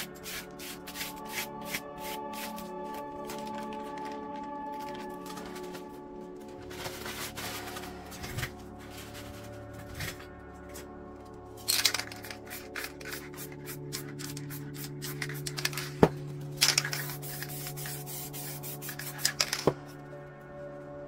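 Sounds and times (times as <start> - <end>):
spray paint can hissing: 0.0 - 2.7, 11.9 - 15.9, 16.7 - 19.6
background music: 0.0 - 21.0.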